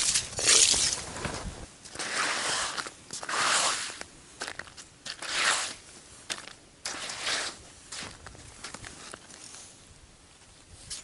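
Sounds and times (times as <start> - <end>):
crunchy ice scraping: 0.0 - 9.6.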